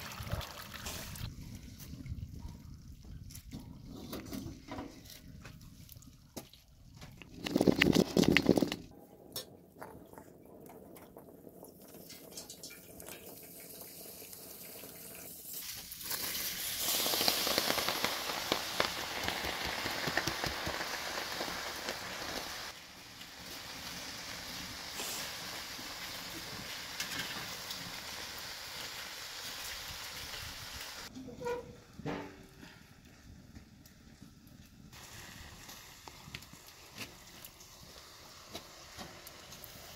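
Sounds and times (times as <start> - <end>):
food sizzling in a pot: 12.3 - 31.1, 34.9 - 39.9.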